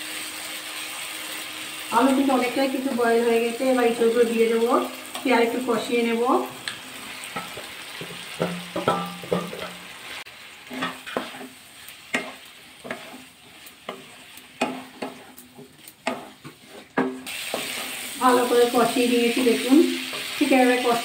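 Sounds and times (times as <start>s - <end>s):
oil sizzling: 0.0s - 21.0s
spatula scraping and knocking pot: 7.3s - 9.8s, 10.7s - 18.0s.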